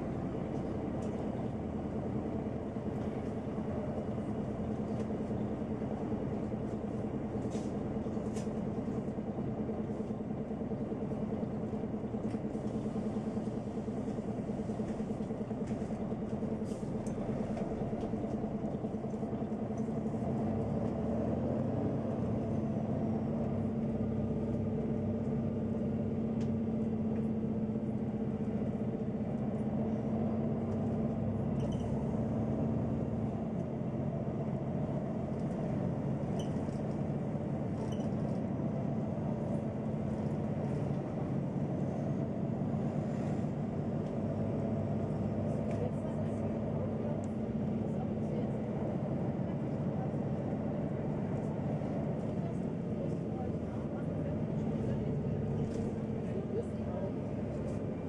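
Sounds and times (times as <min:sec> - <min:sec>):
bus diesel engine drone: 0:00.0 - 0:58.0.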